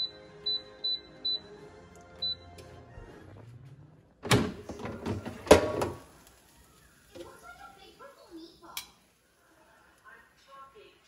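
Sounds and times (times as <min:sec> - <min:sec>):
air fryer basket clatter: 0:04.2 - 0:06.1.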